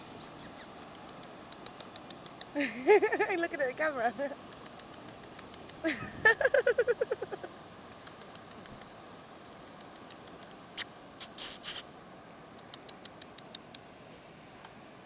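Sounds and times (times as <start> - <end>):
rustle: 0.0 - 15.0.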